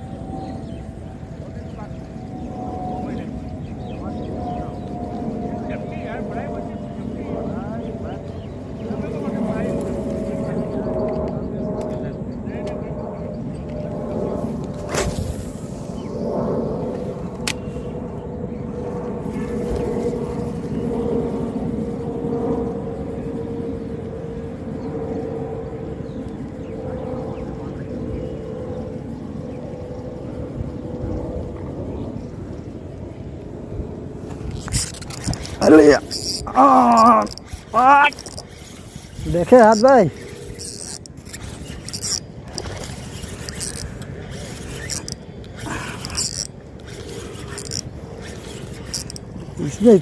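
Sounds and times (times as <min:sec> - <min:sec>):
wavering engine-like drone: 0:00.0 - 0:50.0
fishing reel cranking scrapes: 0:34.3 - 0:50.0.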